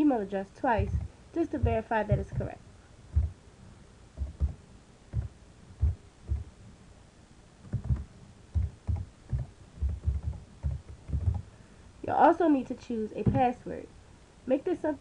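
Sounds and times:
computer keyboard typing: 4.2s - 4.6s, 7.7s - 8.0s, 8.6s - 11.4s.

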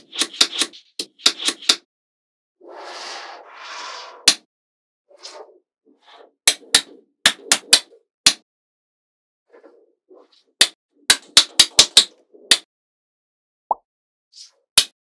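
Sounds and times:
magnetic balls clicking together: 0.0s - 1.8s, 6.5s - 8.4s, 10.6s - 12.6s.

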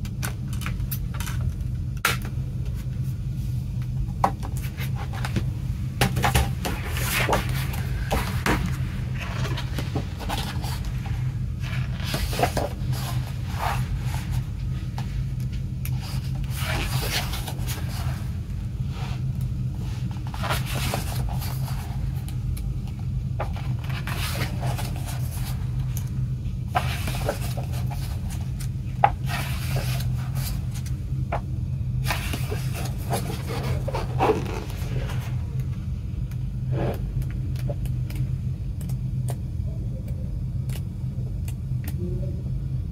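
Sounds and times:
steady low hum: 0.0s - 42.9s
pages turning and rustling: 4.4s - 22.4s, 23.4s - 31.4s, 32.0s - 35.7s.

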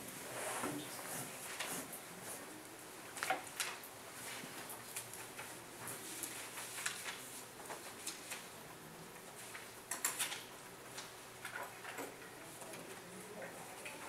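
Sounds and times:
paper rustling and flipping: 3.2s - 8.5s.

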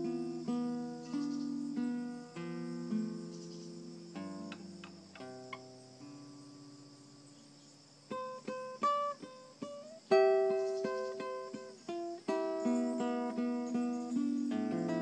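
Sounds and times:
nylon-string guitar fingerstyle: 0.0s - 15.0s.

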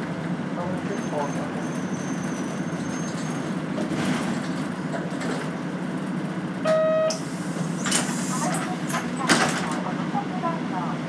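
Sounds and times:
bus engine and road drone: 0.0s - 11.0s
short electronic beep: 6.6s - 7.2s.

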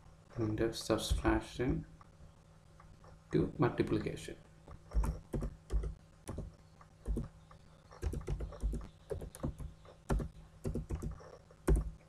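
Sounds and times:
computer keyboard typing: 4.9s - 7.3s, 7.9s - 12.0s.

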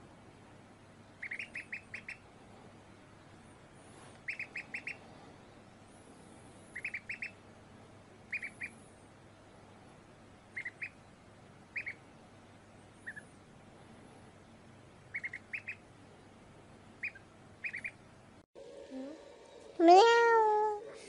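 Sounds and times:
duckling peeping: 1.1s - 2.2s, 4.2s - 5.0s, 6.7s - 7.4s, 8.3s - 8.8s, 10.5s - 12.1s, 12.9s - 13.4s, 15.1s - 15.9s, 16.9s - 18.0s.

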